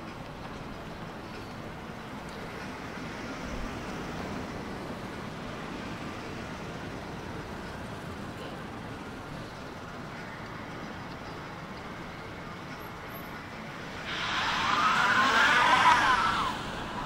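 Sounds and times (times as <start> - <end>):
passing traffic road noise: 0.0 - 17.0.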